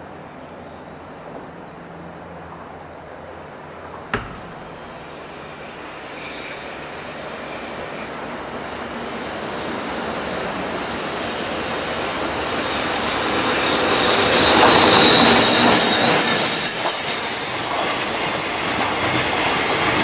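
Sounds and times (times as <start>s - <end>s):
sharp click: 4.1s - 5.3s
freight train approaching: 4.8s - 20.0s.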